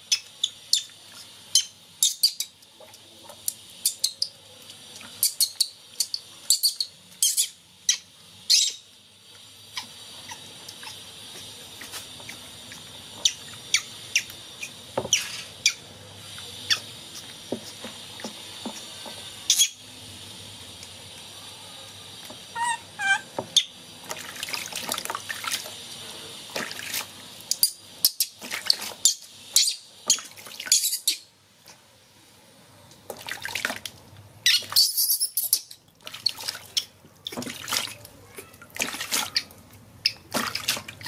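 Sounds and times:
high squeaks: 22.5s - 23.7s
water splashing in a tub: 24.0s - 27.6s, 28.3s - 30.8s, 33.0s - 41.0s.

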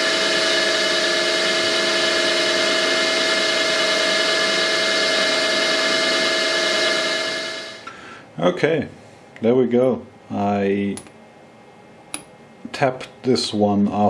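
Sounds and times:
machine spindle whining: 0.0s - 7.9s.

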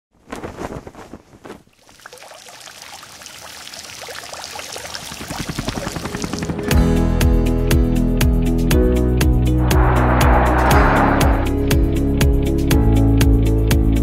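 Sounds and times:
fountain water splashing: 1.8s - 6.5s.

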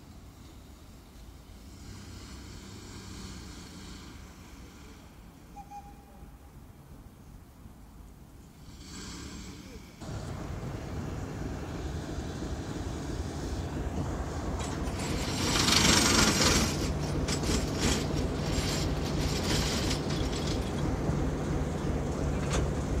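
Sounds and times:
diesel locomotive engine droning: 0.0s - 23.0s
loud air hiss: 0.3s - 5.5s, 8.6s - 16.9s.

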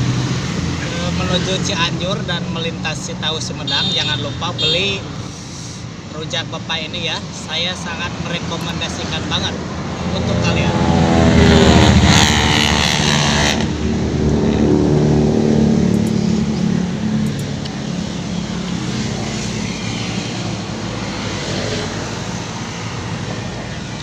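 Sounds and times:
traffic rumble: 0.0s - 24.0s
motor vehicle passing: 8.7s - 24.0s.

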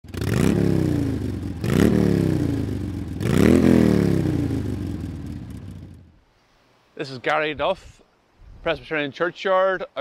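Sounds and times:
motorcycle engine revving: 0.0s - 6.2s.

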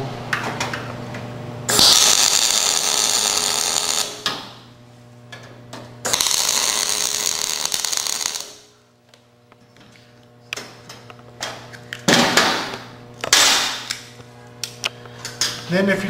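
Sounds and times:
welding arc crackling: 1.7s - 4.8s, 6.0s - 8.9s.

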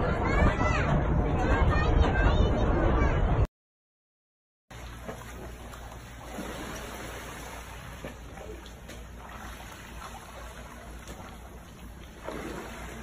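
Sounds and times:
pool water sloshing and splashing: 4.7s - 13.0s.

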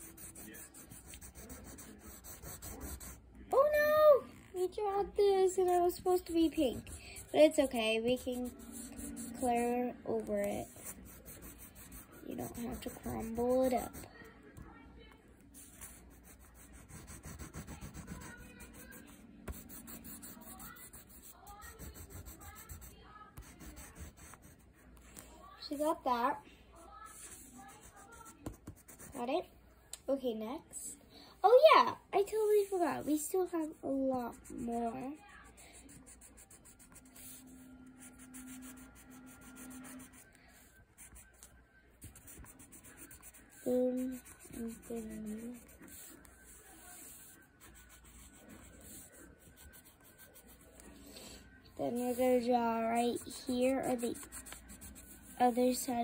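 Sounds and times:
oil pastel rubbing on paper: 0.0s - 3.2s, 6.1s - 14.1s, 15.6s - 24.7s, 34.2s - 51.0s, 51.8s - 56.0s.

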